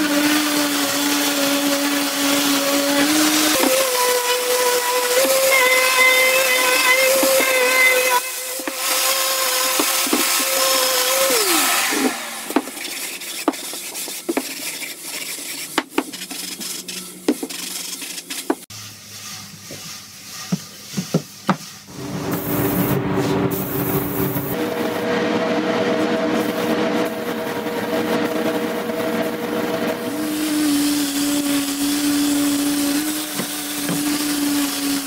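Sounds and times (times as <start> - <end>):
hand sanding strokes on wood: 0.0 - 22.9.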